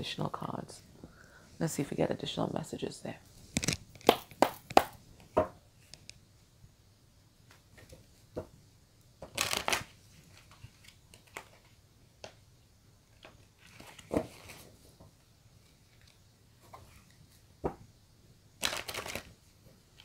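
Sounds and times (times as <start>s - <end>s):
cards being shuffled: 9.2s - 11.8s, 18.6s - 19.3s.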